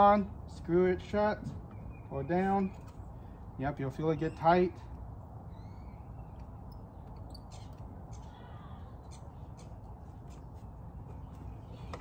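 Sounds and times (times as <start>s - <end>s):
faint bird chirps: 5.5s - 9.8s.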